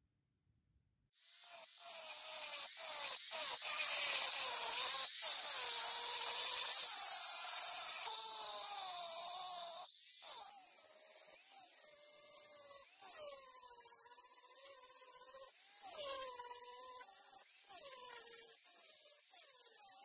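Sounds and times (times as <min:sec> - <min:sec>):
angle grinder grinding steel: 0:01.3 - 0:10.6.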